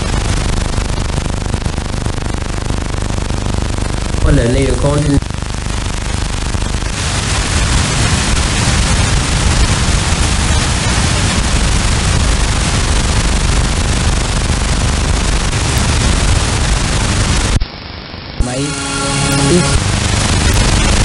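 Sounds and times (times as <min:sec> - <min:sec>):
radio static and hiss: 0:00.0 - 0:21.0.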